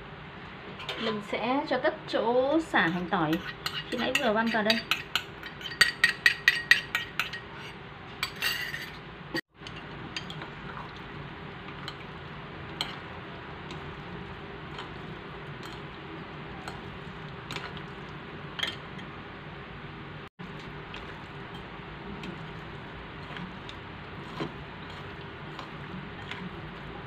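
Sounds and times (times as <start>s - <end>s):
soft mixing: 2.6s - 7.7s, 9.5s - 27.0s
metal spoon clinking on ceramic bowl: 2.9s - 7.4s.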